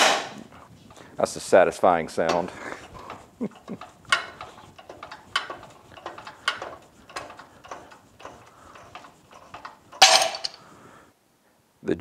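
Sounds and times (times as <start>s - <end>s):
metallic clicks and clacks: 2.2s - 10.6s
harsh metal clatter: 2.3s - 10.6s.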